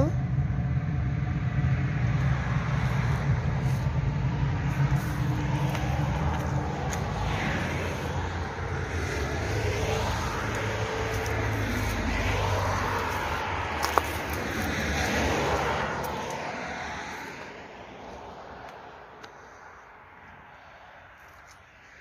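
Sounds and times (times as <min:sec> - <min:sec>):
cars passing on road: 0:00.0 - 0:22.0.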